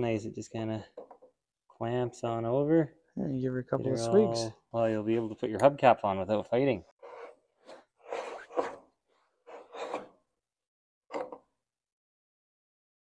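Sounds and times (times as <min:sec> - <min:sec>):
metal scraping strokes: 0:07.0 - 0:08.8, 0:09.5 - 0:10.2.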